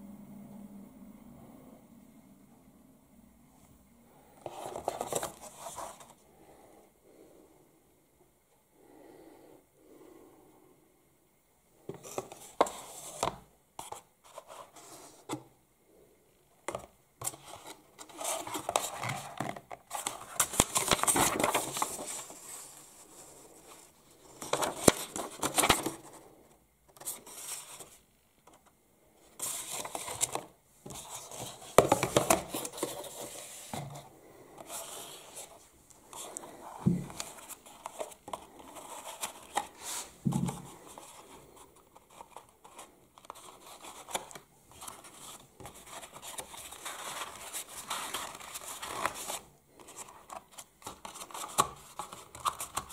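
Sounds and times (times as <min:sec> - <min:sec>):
paper and cardboard rustling: 0:04.4 - 0:06.2, 0:16.7 - 0:26.2, 0:29.3 - 0:52.9.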